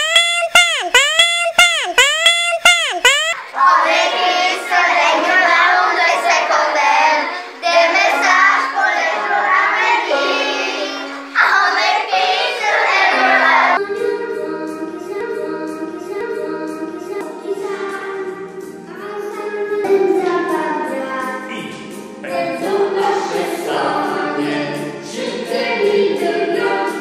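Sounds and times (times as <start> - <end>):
backing music: 0.0 - 3.4, 12.9 - 27.0
children singing: 3.4 - 21.6, 22.2 - 27.0.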